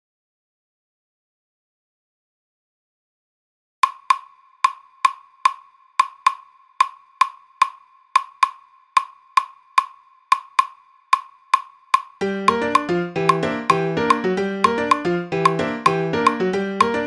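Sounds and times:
claves clicking a rhythm: 0:03.8 - 0:17.0.

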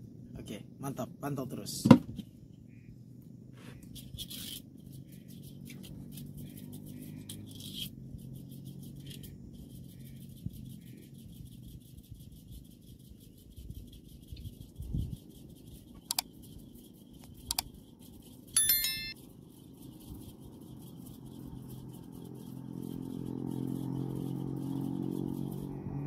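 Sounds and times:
mouse clicks: 0:16.0 - 0:16.3, 0:17.4 - 0:17.7
bright bell chime: 0:18.6 - 0:19.2
low engine hum: 0:21.6 - 0:26.0.

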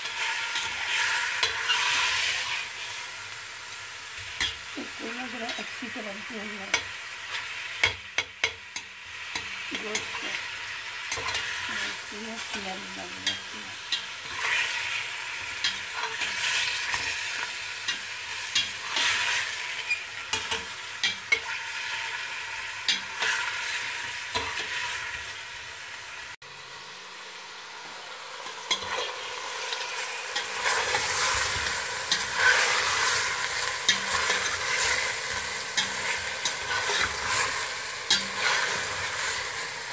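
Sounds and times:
chicken sizzling in a pot: 0:00.0 - 0:39.9
metal spoon scraping a pot: 0:30.4 - 0:38.8.

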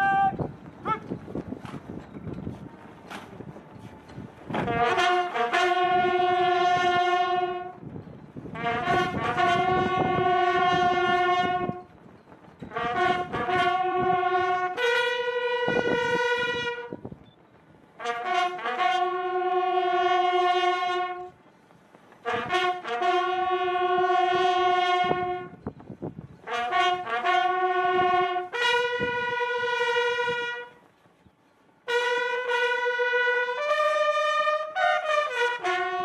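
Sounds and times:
bugle call: 0:00.0 - 0:01.8, 0:04.5 - 0:07.8, 0:08.5 - 0:11.9, 0:12.7 - 0:17.0, 0:18.0 - 0:21.4, 0:22.2 - 0:25.6, 0:26.4 - 0:30.8, 0:31.9 - 0:36.0.

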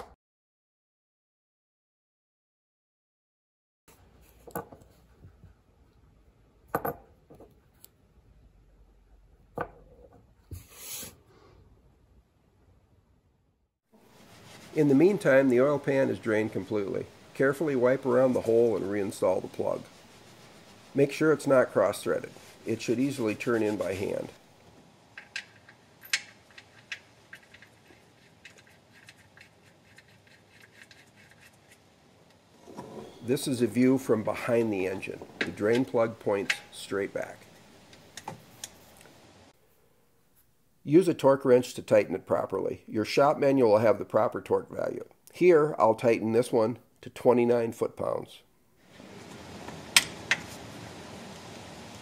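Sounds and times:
short metal scrape: 0:10.6 - 0:11.2.

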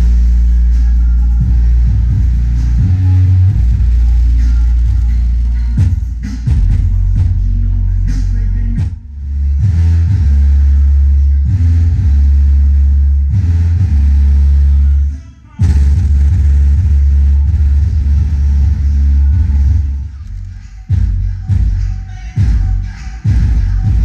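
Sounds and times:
loud subwoofer bass music: 0:00.0 - 0:24.0.

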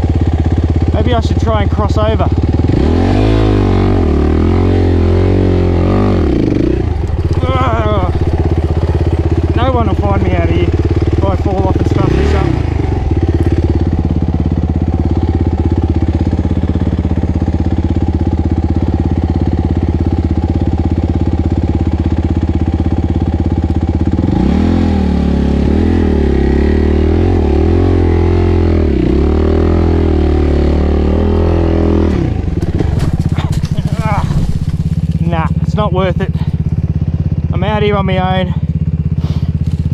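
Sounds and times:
dirt bike engine revving: 0:00.0 - 0:23.3, 0:24.0 - 0:37.9.

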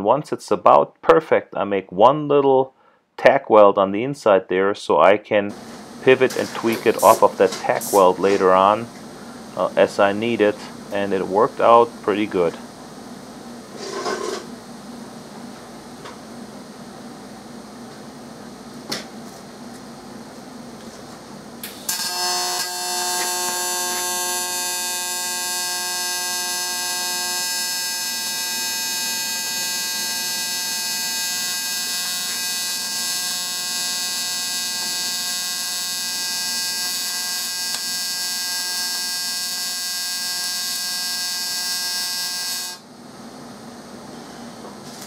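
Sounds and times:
welding arc buzzing: 0:05.5 - 0:14.7, 0:21.6 - 0:42.9.

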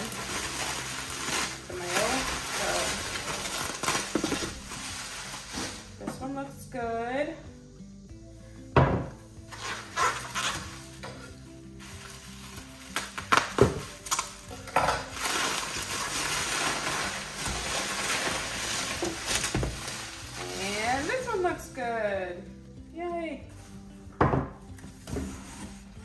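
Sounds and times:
plastic wrap crinkling: 0:00.0 - 0:06.2, 0:09.5 - 0:21.6
jar and box knocking on table: 0:08.8 - 0:09.2, 0:24.2 - 0:24.6.

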